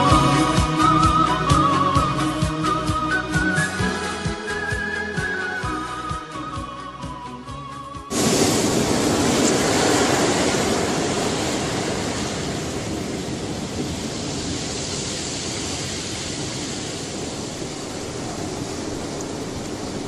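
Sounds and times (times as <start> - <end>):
surf breaking on beach: 8.1 - 20.0.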